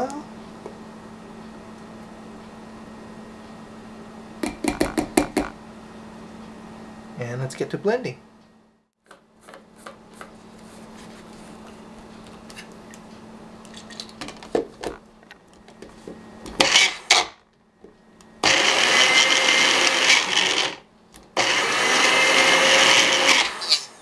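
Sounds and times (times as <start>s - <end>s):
blender motor whining: 16.6s - 17.4s, 18.4s - 20.8s, 21.4s - 24.0s.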